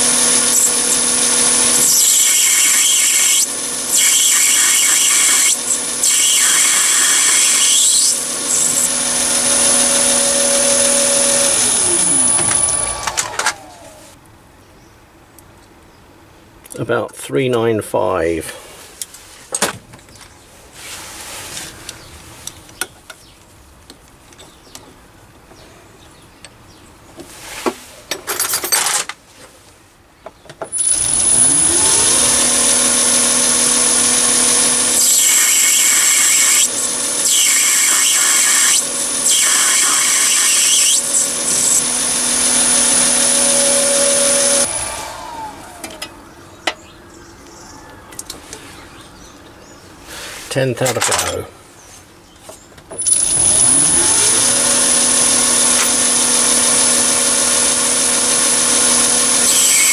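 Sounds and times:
lathe motor whining: 0:00.0 - 0:14.2, 0:30.8 - 0:46.8, 0:53.0 - 0:59.9.

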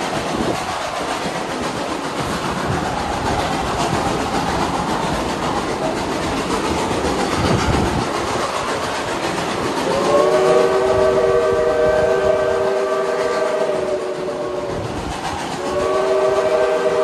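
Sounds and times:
train rolling over rails: 0:00.0 - 0:17.0
steam whistle chord: 0:09.8 - 0:14.9, 0:15.6 - 0:17.0.

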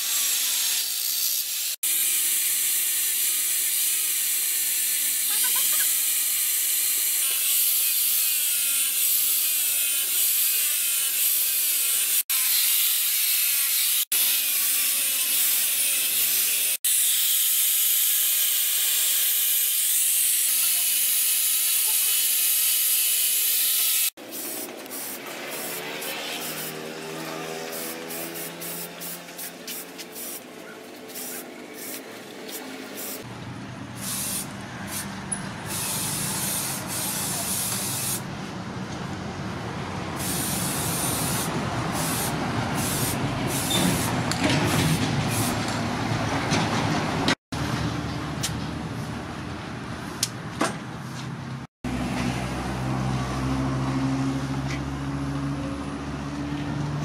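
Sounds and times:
aerosol spray can hissing: 0:20.8 - 0:26.8, 0:27.7 - 0:30.4, 0:31.1 - 0:33.3, 0:34.0 - 0:35.1, 0:35.7 - 0:38.2, 0:40.2 - 0:44.2.

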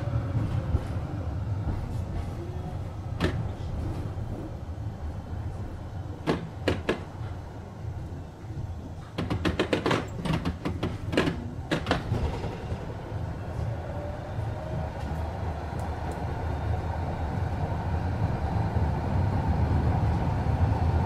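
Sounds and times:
tram doors knocking and rattling: 0:00.0 - 0:15.8
tram humming: 0:00.0 - 0:21.0
tram motor whine: 0:10.3 - 0:21.0.

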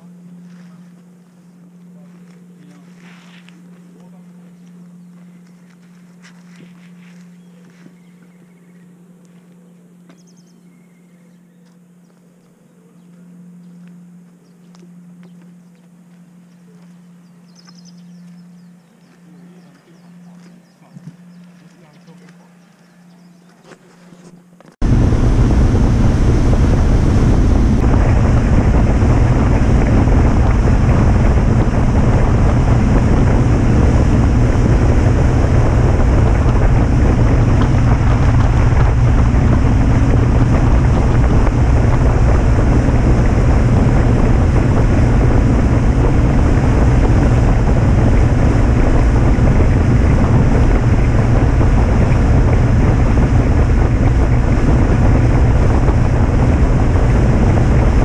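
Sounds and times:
wind buffeting microphone: 0:24.8 - 0:58.0.

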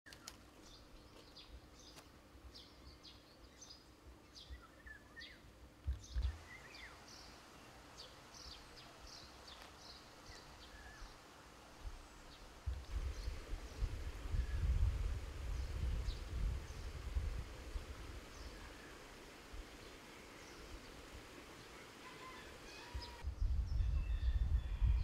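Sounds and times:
songbirds chirping: 0:00.1 - 0:25.0.

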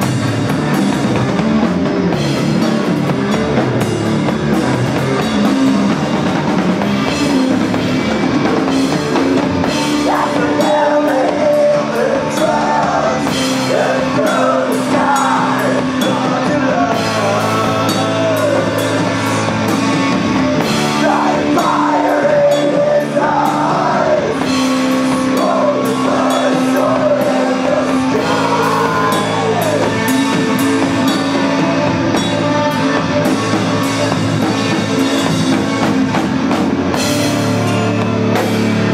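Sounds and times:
bass guitar low notes: 0:00.0 - 0:38.9
drum kit with cymbals: 0:00.0 - 0:38.9
electric guitar: 0:00.0 - 0:38.9
person singing: 0:09.6 - 0:34.2.

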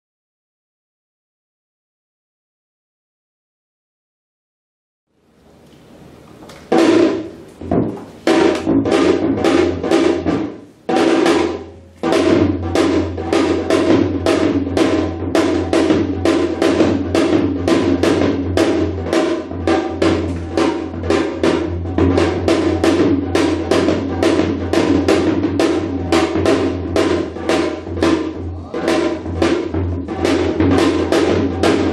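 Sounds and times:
hourglass drum rhythm: 0:06.7 - 0:31.9.

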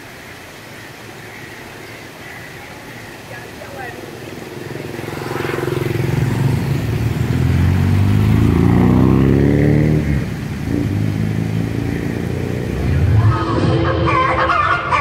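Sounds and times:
vehicle engine accelerating: 0:03.4 - 0:15.0.

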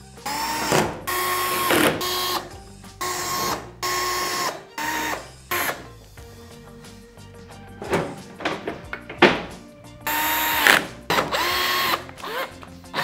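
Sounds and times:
electric screwdriver whine: 0:00.2 - 0:05.9, 0:10.1 - 0:13.0.

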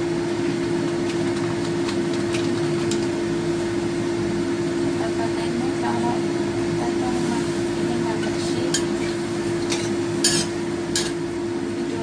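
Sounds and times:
kitchen fan hum: 0:00.0 - 0:12.0
metal spatula stirring in wok: 0:09.6 - 0:11.2.

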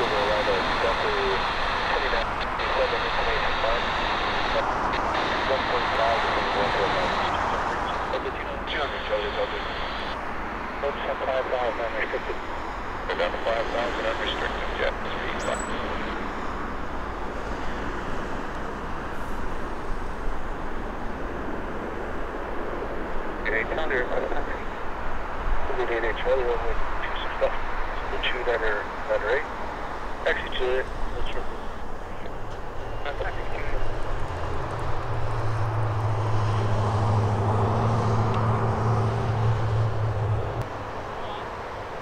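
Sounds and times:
aircraft engine noise: 0:00.0 - 0:42.0
distant outdoor rumble: 0:00.0 - 0:42.0
turboprop propeller drone: 0:00.0 - 0:42.0.

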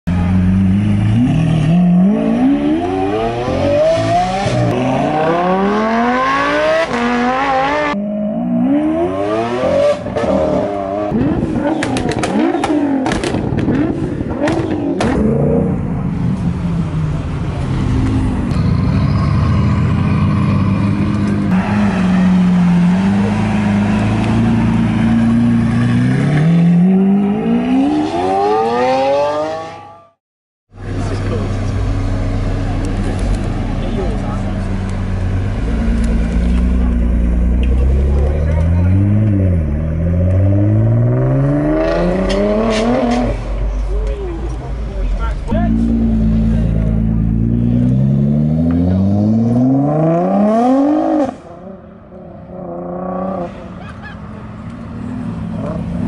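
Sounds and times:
sharp exhaust pops and bangs: 0:11.2 - 0:15.2
car engine accelerating hard: 0:30.8 - 0:44.6.

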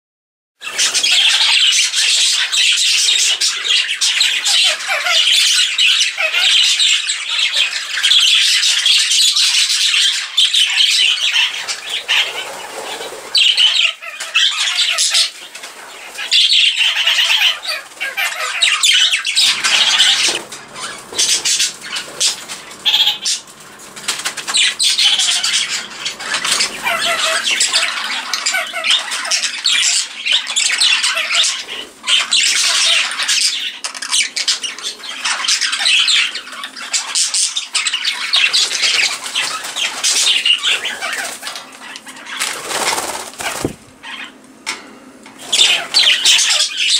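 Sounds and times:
budgerigars chattering and squawking: 0:00.6 - 0:46.9.

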